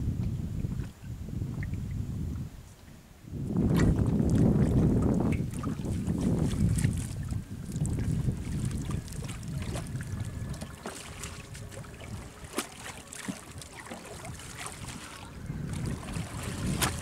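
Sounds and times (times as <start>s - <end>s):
wind rumbling on microphone: 0.0s - 17.0s
water splashing and dripping: 3.7s - 17.0s.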